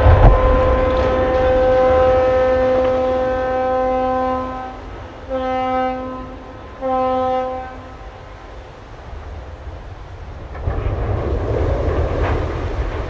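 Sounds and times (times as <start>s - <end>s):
ship's horn blasts: 0.0s - 8.5s
low wind rumble: 0.0s - 13.0s.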